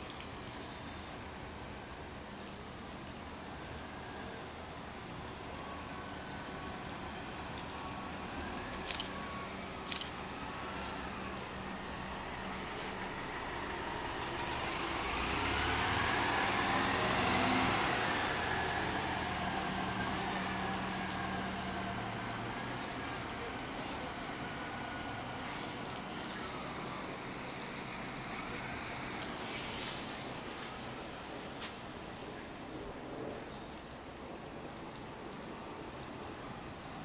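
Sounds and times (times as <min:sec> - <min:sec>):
bus engine hum and whine: 0:03.6 - 0:32.2.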